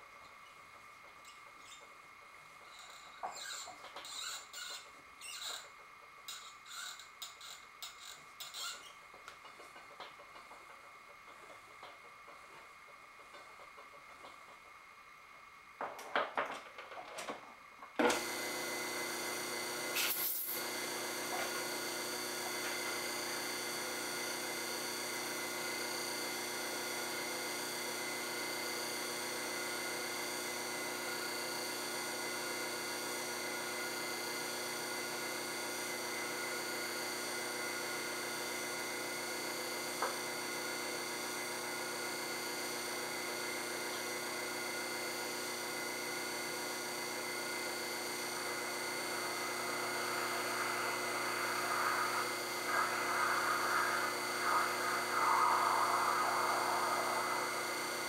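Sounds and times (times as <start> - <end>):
metal lathe whining: 47.2 - 58.0.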